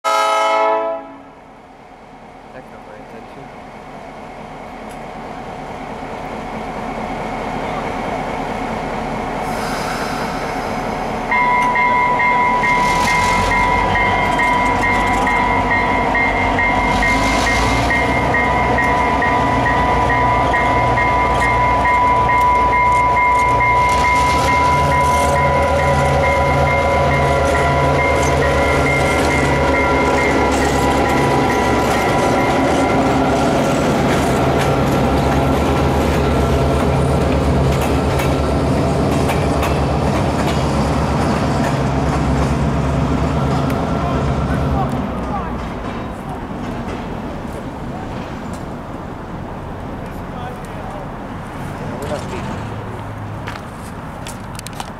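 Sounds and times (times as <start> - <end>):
diesel locomotives running: 0.1 - 54.9
steady high tone: 11.2 - 34.5.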